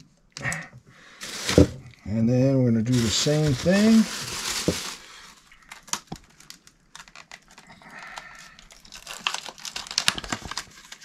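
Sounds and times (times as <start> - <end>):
plastic packaging crinkling: 1.2 - 1.9, 2.9 - 11.0.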